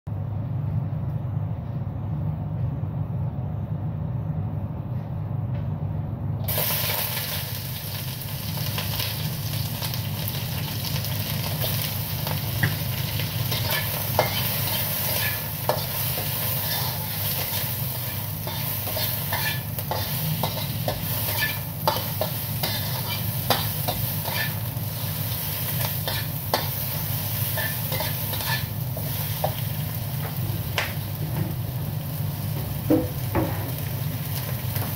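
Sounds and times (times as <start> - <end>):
steady low hum: 0.1 - 6.5
onions sizzling in hot oil: 6.5 - 34.9
metal spatula scraping wok: 13.1 - 29.7.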